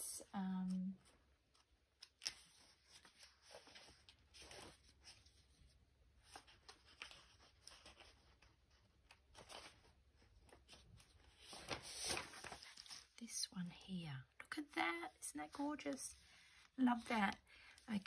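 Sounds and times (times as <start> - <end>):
paper sheets rustling: 1.5 - 13.2.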